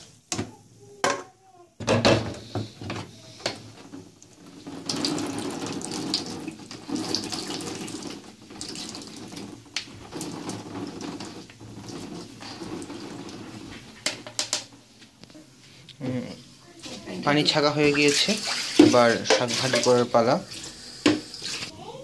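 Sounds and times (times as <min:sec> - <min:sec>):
spatula stirring leaves: 0:03.2 - 0:14.1, 0:16.7 - 0:20.5
water draining and dripping: 0:03.4 - 0:14.7, 0:17.7 - 0:21.8
spatula knocking on colander: 0:18.7 - 0:20.0.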